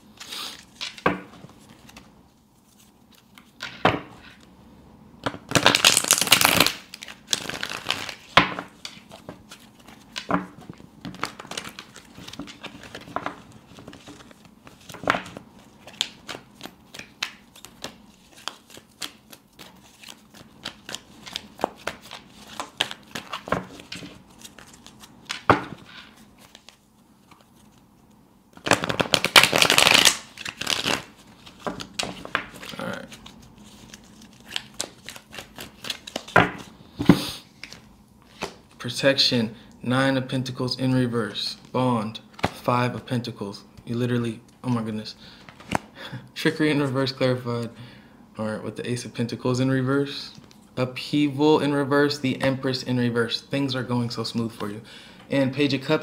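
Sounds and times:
cards being shuffled: 0:05.3 - 0:27.8, 0:28.5 - 0:38.8.

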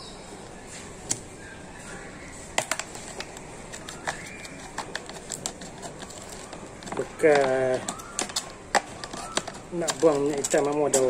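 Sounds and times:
knife cutting plastic bottle: 0:02.6 - 0:11.0.

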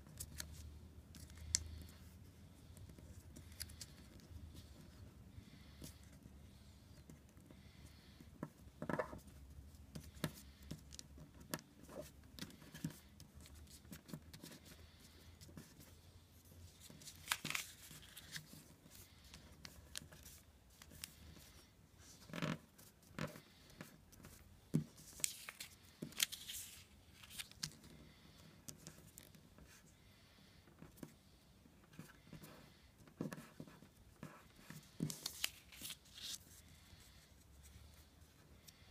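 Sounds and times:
paper rustling and crackling: 0:16.8 - 0:18.7, 0:24.9 - 0:27.8, 0:35.0 - 0:36.5.

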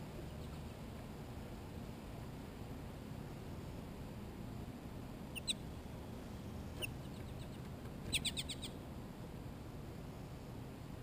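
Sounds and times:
nuthatch calling high notes: 0:05.4 - 0:05.6.

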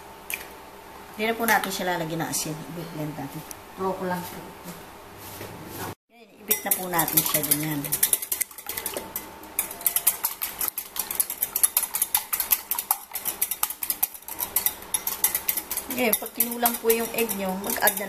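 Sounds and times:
whisk clicking against glass bowl: 0:06.5 - 0:18.0.

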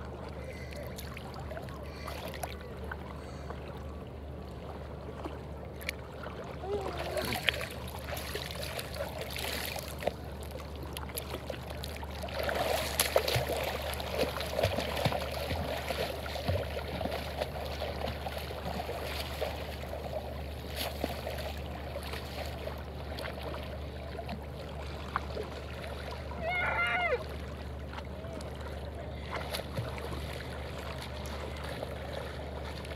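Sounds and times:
swimmer splashing: 0:00.0 - 0:03.9, 0:04.6 - 0:32.9
seawater lapping at shore: 0:00.0 - 0:32.9.

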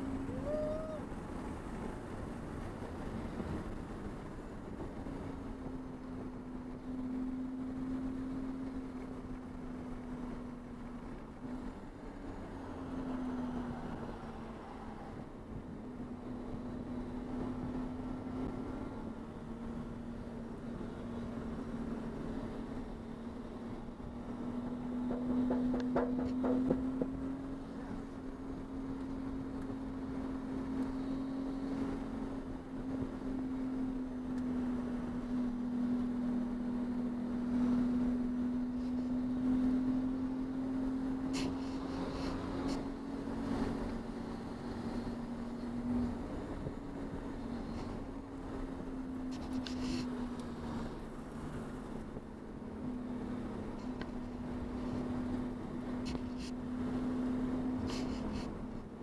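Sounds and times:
race car engine droning: 0:00.0 - 0:59.0
road and wind rumble: 0:00.0 - 0:59.0
knocks and rattles: 0:25.0 - 0:27.1.

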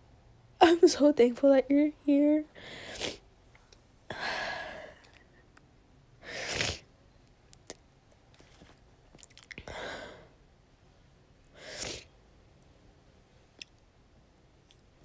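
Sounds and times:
girl sniffling: 0:02.6 - 0:03.2, 0:06.2 - 0:06.9, 0:11.6 - 0:12.1.

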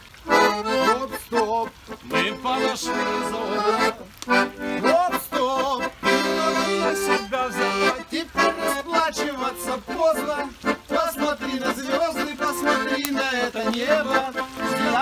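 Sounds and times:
piano accordion playing: 0:00.2 - 0:15.0.

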